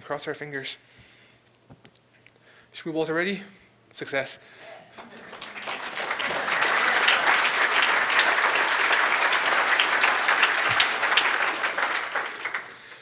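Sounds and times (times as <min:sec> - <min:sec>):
audience applauding: 0:05.0 - 0:13.0.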